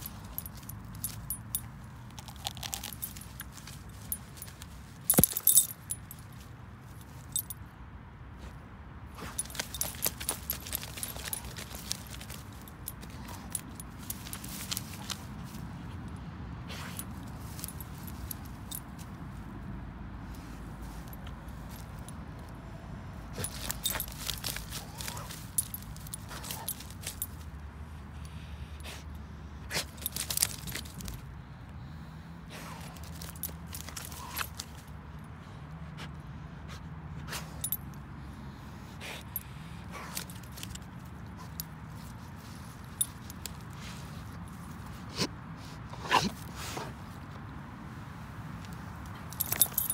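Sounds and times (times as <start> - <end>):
dog digging in dry grass and dirt: 0.0 - 7.7, 8.4 - 49.9
metal tag and leash clip jingling: 0.0 - 7.7, 9.1 - 19.6, 20.2 - 29.0, 29.7 - 31.3, 32.7 - 35.3, 37.4 - 38.0, 39.0 - 45.0, 48.6 - 49.9.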